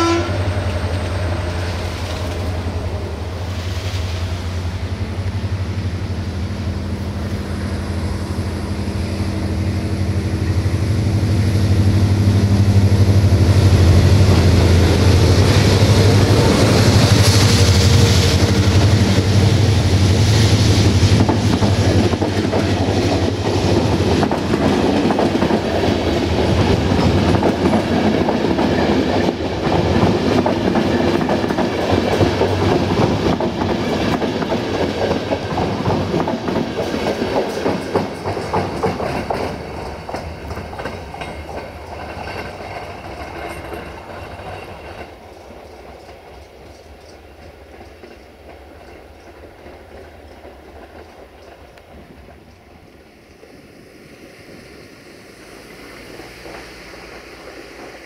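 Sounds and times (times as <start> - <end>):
diesel locomotive drone: 0.0 - 58.0
train wheels clattering over rail joints: 12.9 - 53.1, 55.4 - 58.0.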